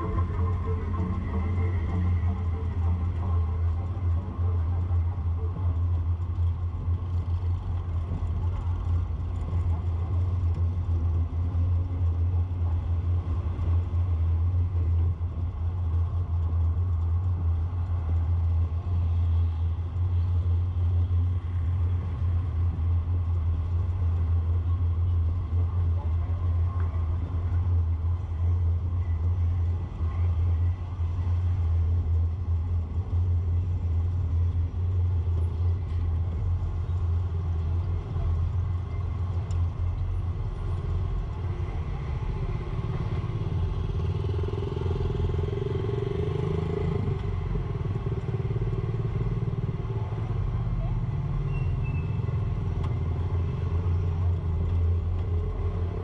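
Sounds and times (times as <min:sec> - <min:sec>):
surrounding traffic: 0:00.0 - 0:56.0
vehicle low rumble: 0:00.0 - 0:56.0.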